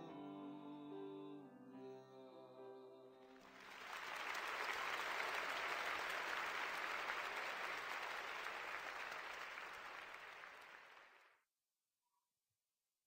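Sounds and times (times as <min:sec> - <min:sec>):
audience applauding: 0:03.4 - 0:11.3.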